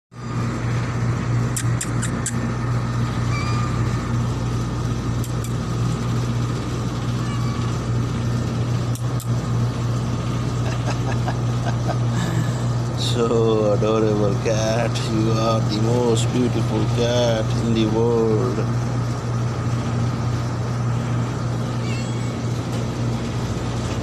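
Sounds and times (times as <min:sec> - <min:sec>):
motor humming: 0:00.1 - 0:24.0
sharp clicks: 0:05.2 - 0:05.6, 0:08.9 - 0:09.4.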